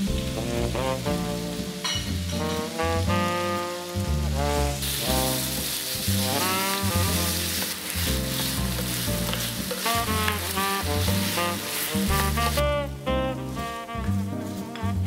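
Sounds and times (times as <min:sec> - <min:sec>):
beef sizzling in a skillet: 0:00.0 - 0:12.6
background music: 0:00.0 - 0:15.0
spatula turning food: 0:04.8 - 0:12.6.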